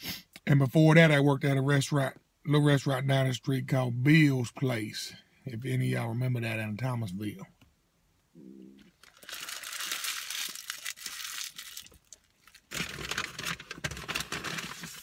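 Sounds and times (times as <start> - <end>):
paper wrapper crinkling: 8.9 - 15.0.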